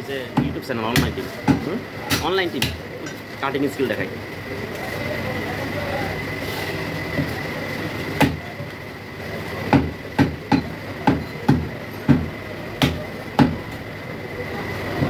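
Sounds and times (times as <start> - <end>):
cleaver chopping on wooden block: 0.4 - 2.8, 9.7 - 13.6.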